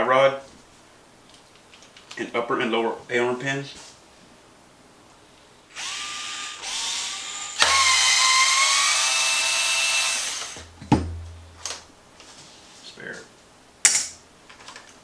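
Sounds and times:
cordless screwdriver whine: 5.8 - 10.6
sharp knocks: 10.8 - 11.8.

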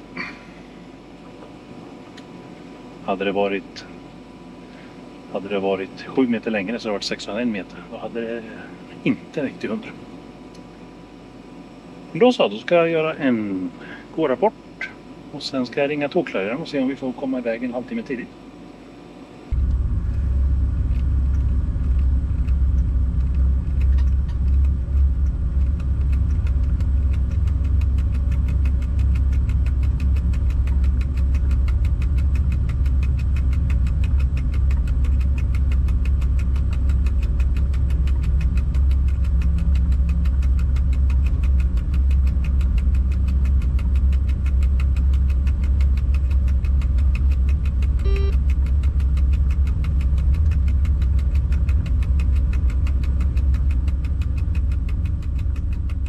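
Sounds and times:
fast even ticking: 19.5 - 56.0
locomotive cab rumble: 19.5 - 56.0
faint short beep: 48.0 - 48.4.

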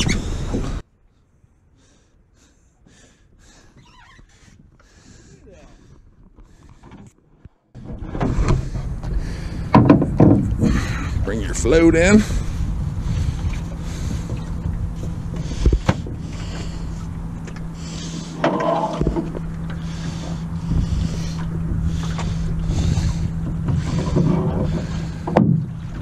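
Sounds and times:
oars splashing in water: 13.1 - 26.0.

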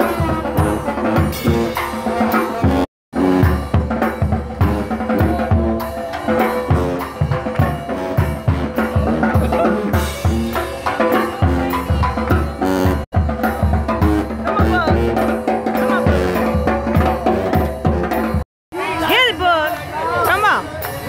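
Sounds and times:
bass drum and snare beat: 0.0 - 18.4
held horn notes: 0.0 - 18.4
brass band music: 0.0 - 19.5.

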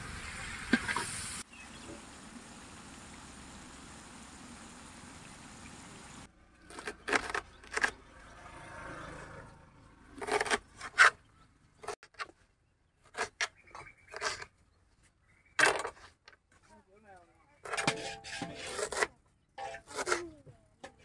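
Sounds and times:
food frying in a pot: 0.0 - 6.3.

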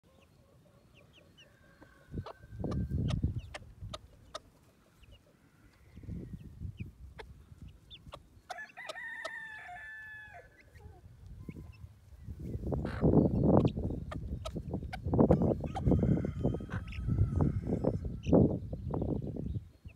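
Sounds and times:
chicks peeping: 0.1 - 9.8, 10.5 - 19.9
hen clucking: 0.9 - 9.4, 10.4 - 18.5
rooster crowing: 8.6 - 10.6, 15.8 - 18.1.

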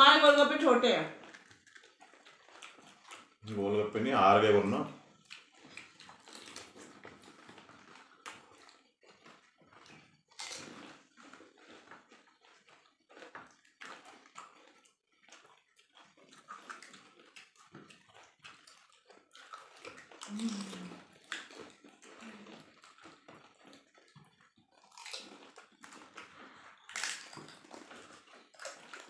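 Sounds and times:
crunching of crisp shells: 1.2 - 3.7, 5.0 - 29.0
wet slurping: 16.2 - 24.4.

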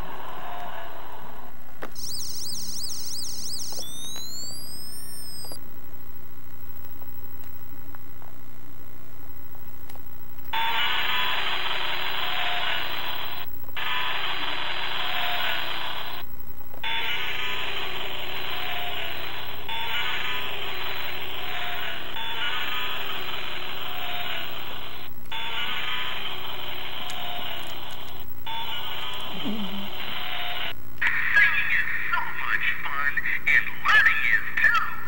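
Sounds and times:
toy electronic siren wailing: 2.0 - 5.6, 16.9 - 24.6, 25.4 - 27.9.

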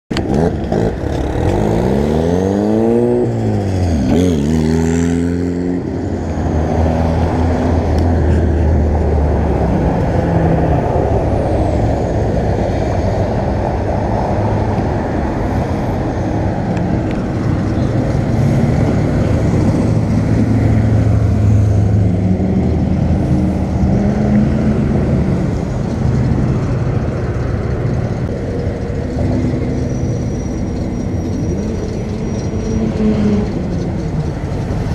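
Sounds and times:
cars driving past: 0.1 - 34.9
engine revving: 0.1 - 34.9.

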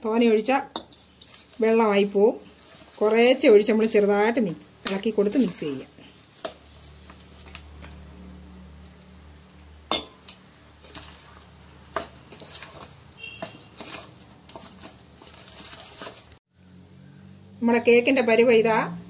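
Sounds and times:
spoon scraping a steel bowl: 0.7 - 4.2, 8.8 - 16.3.

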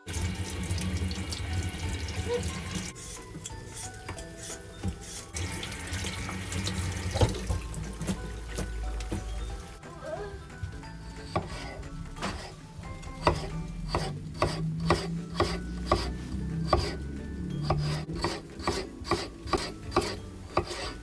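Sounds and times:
knife slicing potato: 2.9 - 5.6, 11.2 - 17.0, 17.6 - 21.0.

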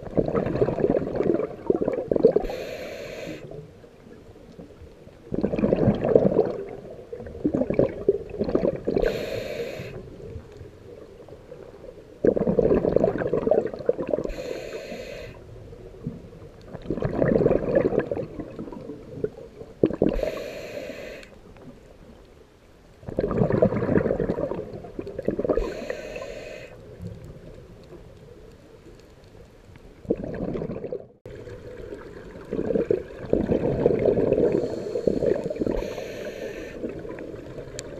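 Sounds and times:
diver exhaling bubbles: 0.0 - 3.4, 5.3 - 10.0, 12.2 - 14.4, 16.8 - 18.7, 23.1 - 26.4, 30.1 - 37.6
regulator inhale hiss: 2.4 - 3.6, 9.0 - 10.2, 14.2 - 15.5, 20.1 - 21.4, 25.6 - 27.0, 34.4 - 37.0.

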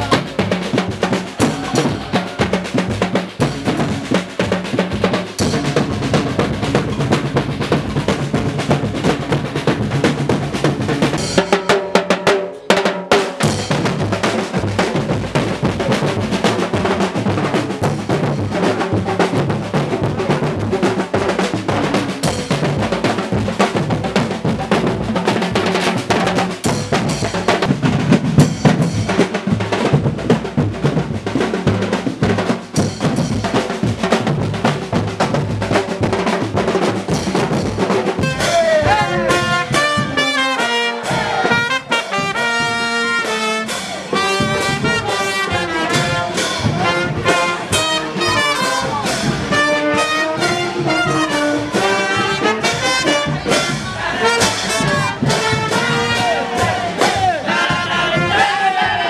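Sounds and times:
marching drums and cymbals: 0.0 - 59.0
brass horns melody: 38.1 - 59.0.

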